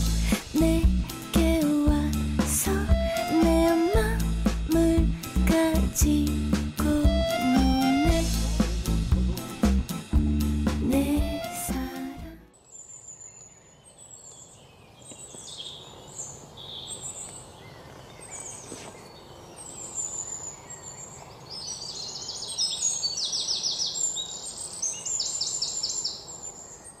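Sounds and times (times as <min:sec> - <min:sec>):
wild birds singing and calling: 0:12.5 - 0:27.0.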